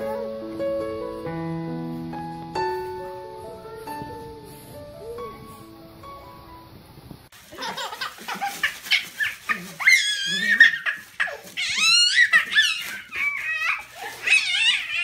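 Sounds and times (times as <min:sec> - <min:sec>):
soft piano music: 0:00.0 - 0:07.3
baby shrieking with laughter: 0:07.7 - 0:15.0.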